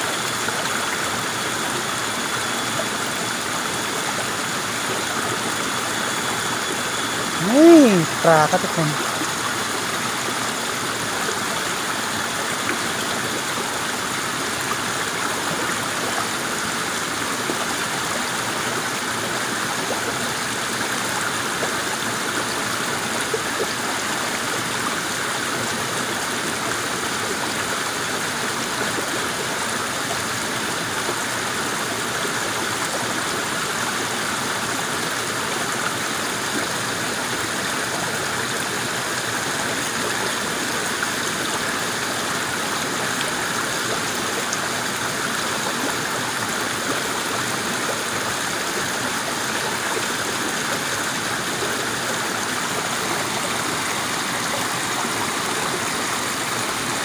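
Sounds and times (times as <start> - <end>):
river rushing over rocks: 38.9 - 57.0.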